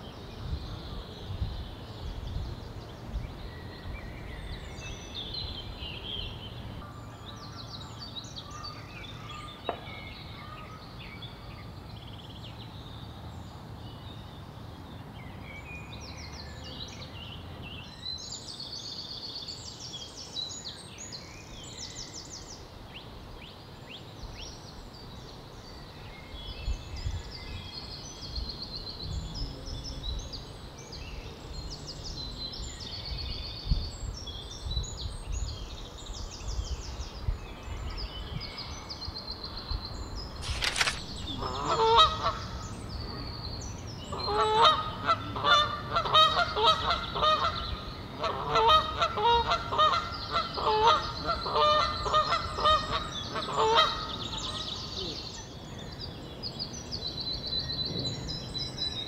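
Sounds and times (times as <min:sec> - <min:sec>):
songbirds chirping: 0:00.0 - 0:59.0
low wind rumble: 0:26.3 - 0:45.9
geese honking: 0:41.4 - 0:42.6.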